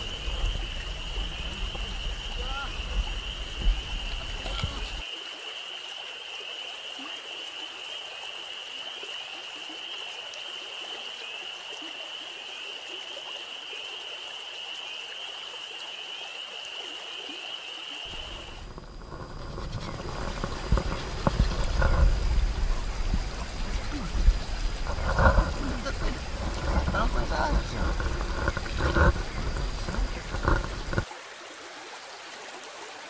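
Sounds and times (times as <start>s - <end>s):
night creatures chorus: 0.0s - 5.1s
stream running: 0.0s - 33.0s
metal scraping on wet stone: 18.1s - 31.0s.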